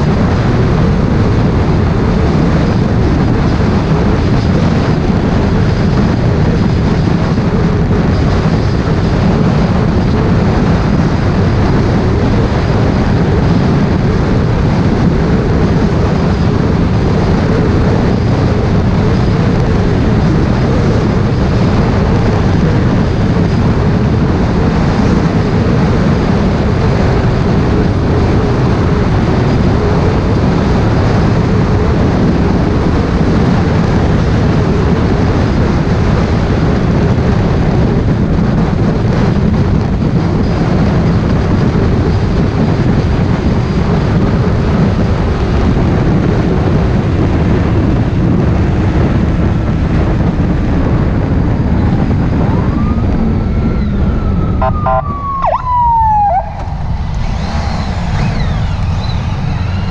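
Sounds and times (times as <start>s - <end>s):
motorcycle engine running: 0.0s - 59.9s
wind rushing over microphone: 0.0s - 59.9s
siren wailing: 52.4s - 59.9s.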